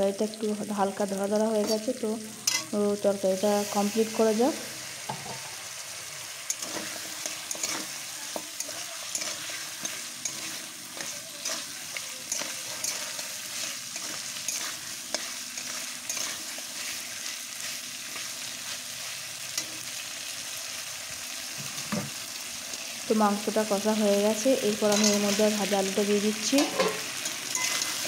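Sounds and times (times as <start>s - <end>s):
curry sizzling in a pan: 0.0s - 28.0s
spatula scraping a pan: 6.5s - 18.5s, 26.6s - 28.0s.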